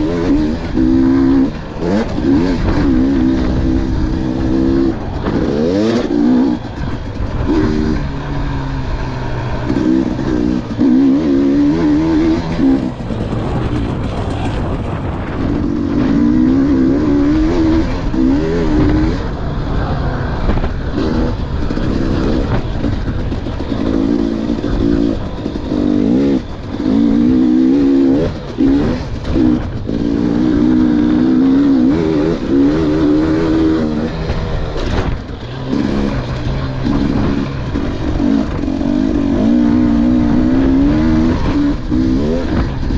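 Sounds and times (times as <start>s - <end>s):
dirt bike engine revving: 0.0s - 42.9s
wind on camera microphone: 12.4s - 26.8s.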